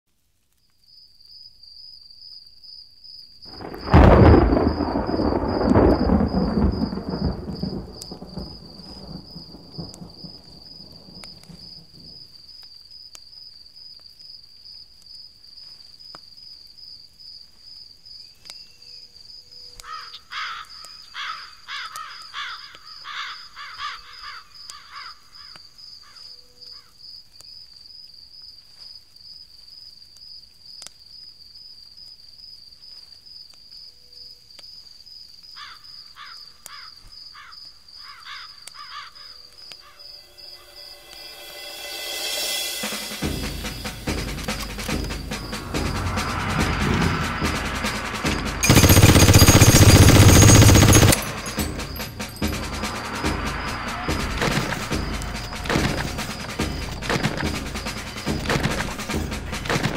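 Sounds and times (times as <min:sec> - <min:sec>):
high-pitched insect trill: 0:00.9 - 0:13.9, 0:35.1 - 0:46.6, 0:47.8 - 0:58.4
thunder rumbling: 0:03.5 - 0:12.3, 0:40.2 - 0:59.9.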